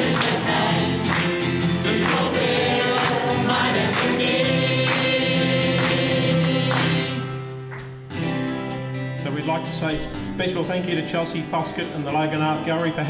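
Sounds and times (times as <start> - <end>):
choir singing in harmony: 0.0 - 7.5
piano accompaniment: 0.0 - 7.9.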